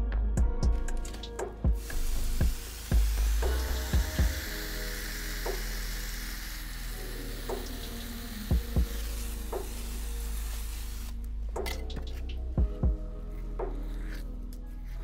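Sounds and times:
pressure sprayer hissing: 1.1 - 11.3.

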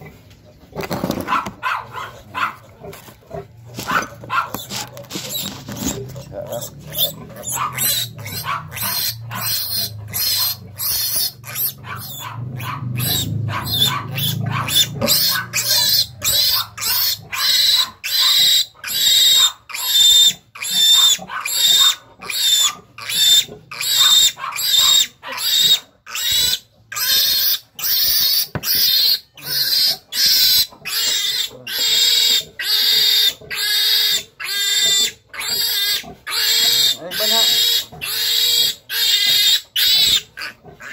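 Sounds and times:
piglet squealing: 3.8 - 40.9.

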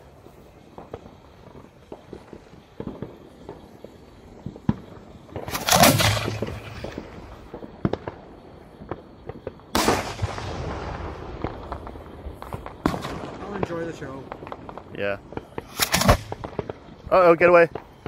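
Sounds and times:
firework mortar boom and crack: 0.0 - 18.0
firework shell bursting bang: 4.5 - 8.2.

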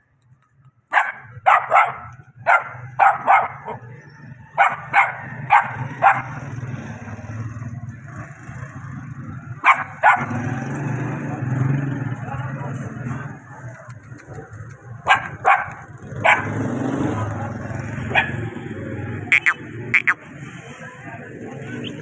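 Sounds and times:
puppies yapping: 1.0 - 6.6, 9.6 - 10.4, 18.1 - 18.5.

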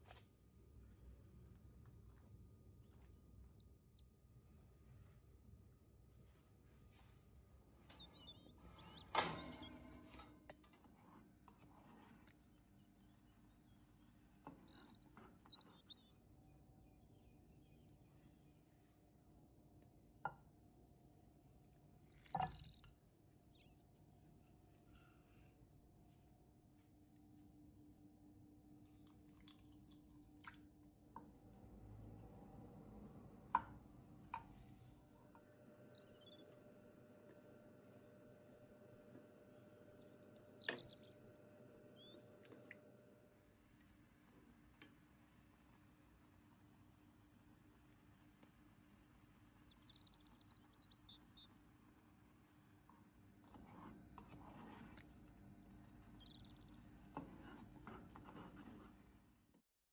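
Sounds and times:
faint bird chirps: 2.8 - 4.1, 7.8 - 9.8, 12.4 - 18.9, 35.2 - 44.6, 46.1 - 51.8, 55.4 - 57.1
metal baking tray clanking: 8.8 - 10.5
juice pouring into a saucepan: 28.9 - 30.6.

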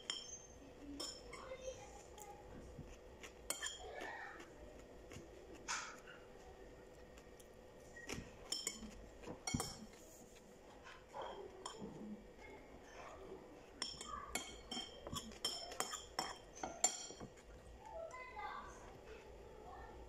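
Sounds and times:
metal spoon clinking on plate: 0.0 - 1.5, 3.4 - 3.9, 8.5 - 10.0, 11.3 - 12.0, 13.8 - 17.4.

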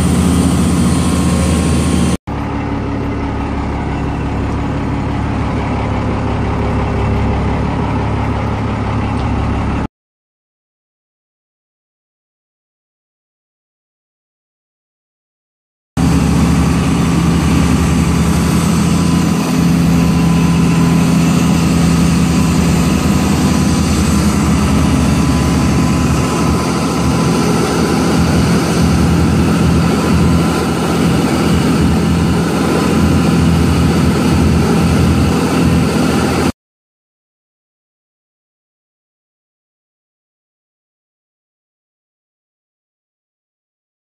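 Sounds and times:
boat engine droning: 0.0 - 9.9, 16.0 - 36.6
wind: 0.0 - 9.9, 16.0 - 36.5
bow wave rushing: 16.0 - 36.5.

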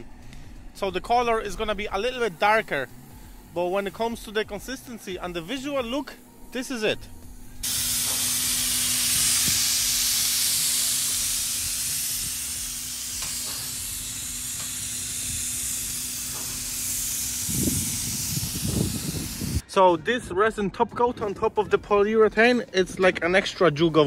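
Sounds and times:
steady low hum: 0.0 - 19.6
spray gun hissing: 0.8 - 19.6.

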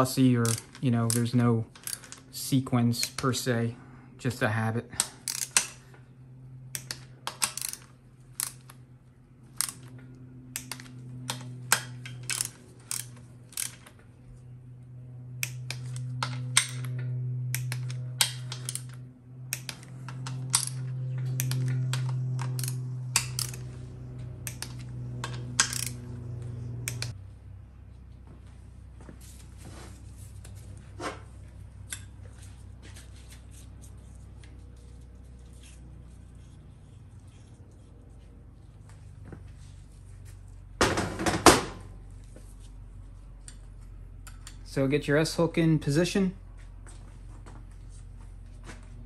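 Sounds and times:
low hum: 0.0 - 40.9
torque wrench clicking: 0.4 - 2.2, 5.2 - 5.8, 6.7 - 8.8, 10.6 - 13.9, 21.4 - 23.7, 24.4 - 26.0, 26.8 - 27.2.

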